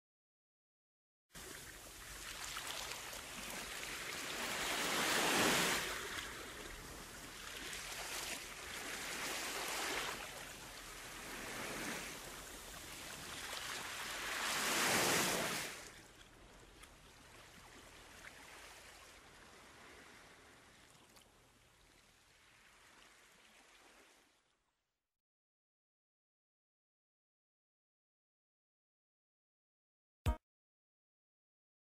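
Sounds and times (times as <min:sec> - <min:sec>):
waves breaking on shore: 0:01.4 - 0:24.4.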